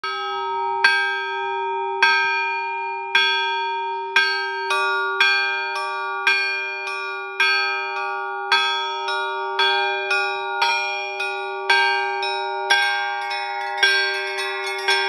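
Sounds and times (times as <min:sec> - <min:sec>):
church bells ringing: 0:00.0 - 0:15.0
low bell humming: 0:08.5 - 0:15.0.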